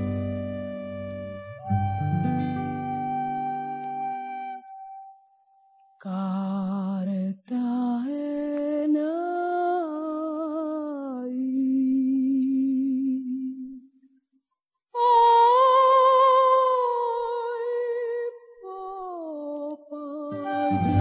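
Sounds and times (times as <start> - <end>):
music chord: 20.4 - 21.0.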